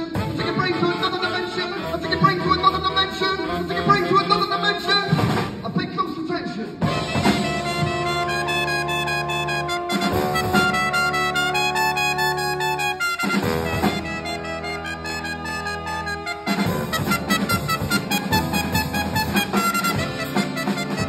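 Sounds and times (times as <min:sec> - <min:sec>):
brass band playing: 0:00.0 - 0:21.0.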